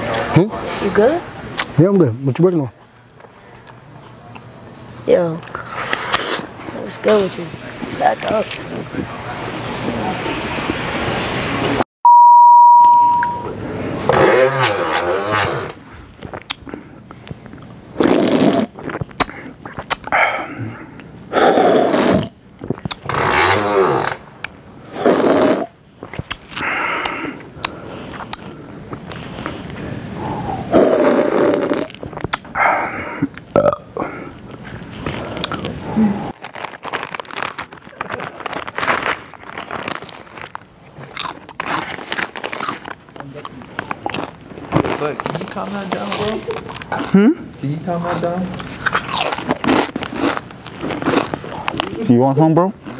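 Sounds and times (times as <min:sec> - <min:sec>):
slurping from a drink can: 0:05.4 - 0:06.5, 0:18.0 - 0:20.1, 0:21.4 - 0:24.2, 0:24.9 - 0:29.8, 0:30.7 - 0:32.4
chip bag crinkling: 0:36.3 - 0:46.9, 0:48.6 - 0:52.0.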